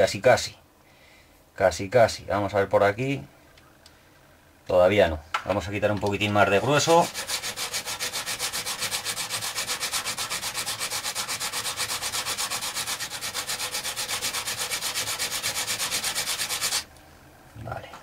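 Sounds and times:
carbon brush scraping on grinding disc: 0:06.5 - 0:16.9.

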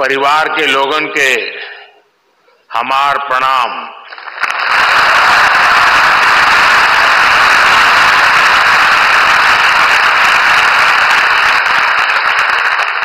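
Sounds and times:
audience applauding: 0:04.1 - 0:13.0.

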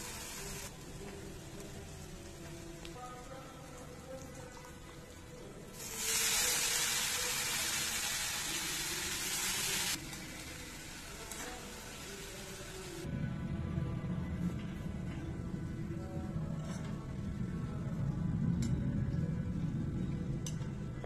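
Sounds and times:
cabbage sizzling in hot oil: 0:00.0 - 0:00.7, 0:05.8 - 0:13.0
soft background music: 0:00.0 - 0:21.0.

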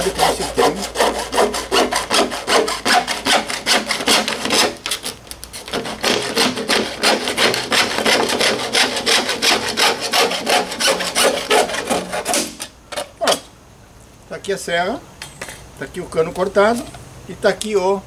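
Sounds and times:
hacksaw cutting plastic pipe: 0:00.0 - 0:13.5.

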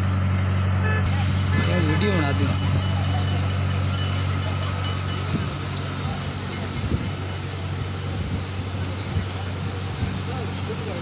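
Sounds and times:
engine humming: 0:00.0 - 0:11.0
fast regular ticking: 0:01.4 - 0:10.3.

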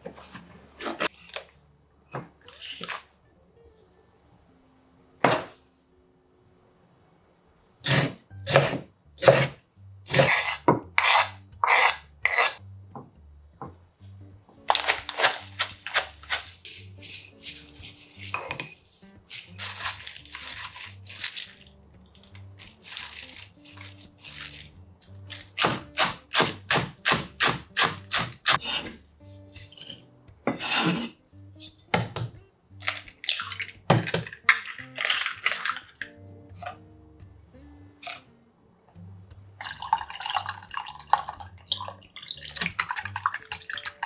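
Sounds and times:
soft background music: 0:00.0 - 0:44.0
spoon scraping ceramic bowl: 0:10.1 - 0:12.6, 0:14.8 - 0:21.3, 0:28.6 - 0:31.9
egg cracking on bowl rim: 0:32.8 - 0:36.1.

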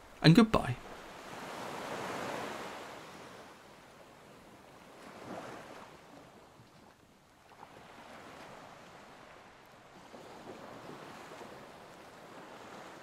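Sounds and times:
waves washing: 0:00.0 - 0:06.6
wind: 0:00.0 - 0:13.0.

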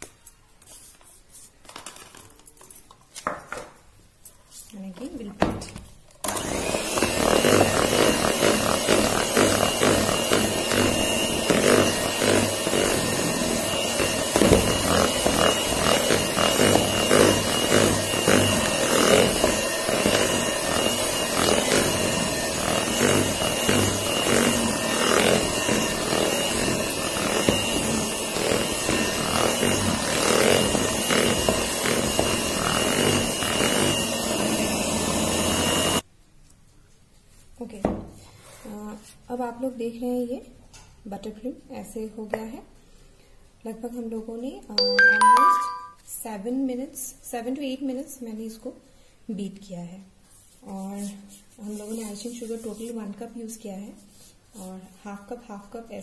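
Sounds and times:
electric mixer motor whining: 0:06.2 - 0:36.0
beaters churning mixture: 0:06.3 - 0:36.0.

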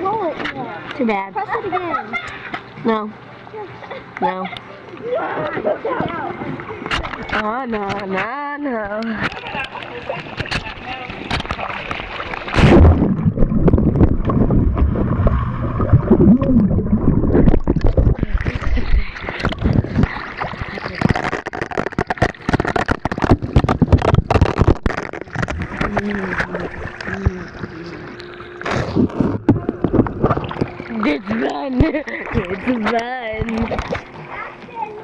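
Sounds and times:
heavy rumble: 0:12.6 - 0:20.1.

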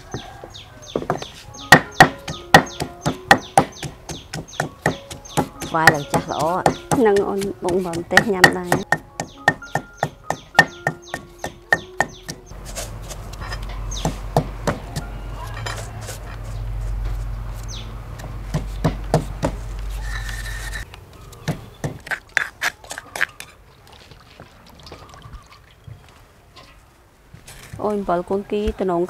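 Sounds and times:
wooden pestle pounding: 0:00.9 - 0:15.1, 0:18.2 - 0:19.7
clicks and scrapes in stone mortar: 0:22.0 - 0:23.5.

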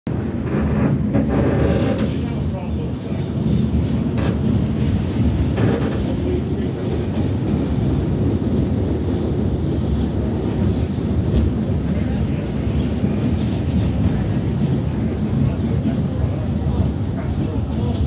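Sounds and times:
subway train rumbling: 0:00.1 - 0:18.0.

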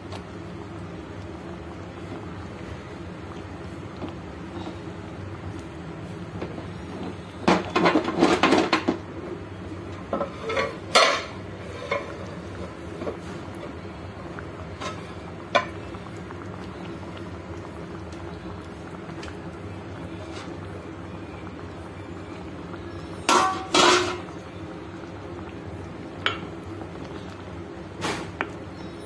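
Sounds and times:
steady low hum: 0:00.0 - 0:29.0
metal kitchenware clattering: 0:10.2 - 0:12.1, 0:23.3 - 0:24.2.

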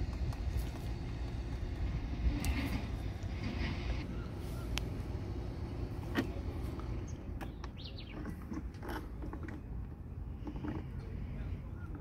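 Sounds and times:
steady low rumble: 0:00.0 - 0:08.2.

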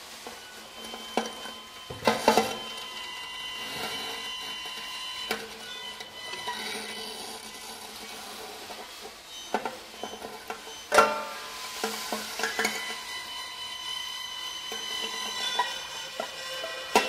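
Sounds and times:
ringing string tones: 0:12.4 - 0:17.0.

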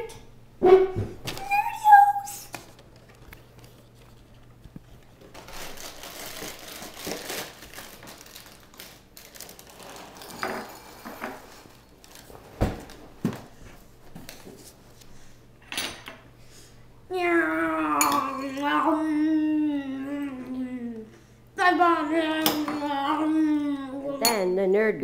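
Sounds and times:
plastic bag crinkling and tearing: 0:05.2 - 0:13.0.

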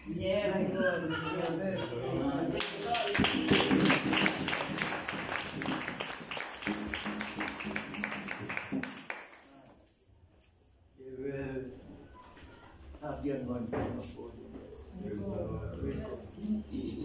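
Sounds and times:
hand clapping: 0:02.2 - 0:10.0.

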